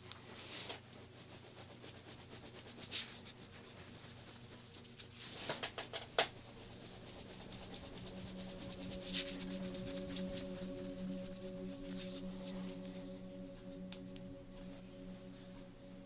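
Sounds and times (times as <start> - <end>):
faint steady hum: 3.3 - 16.0
hands rubbing skin: 6.2 - 15.5.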